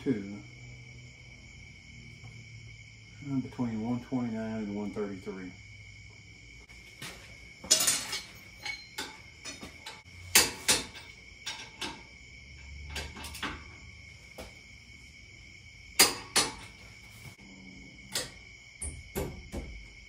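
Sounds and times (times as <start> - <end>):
metal tools clinking: 7.0 - 12.1, 12.9 - 13.8.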